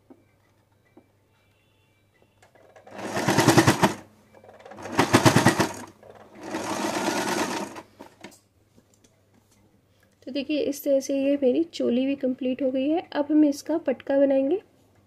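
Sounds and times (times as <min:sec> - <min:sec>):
electric sewing machine stitching: 0:02.8 - 0:04.0, 0:04.6 - 0:08.1.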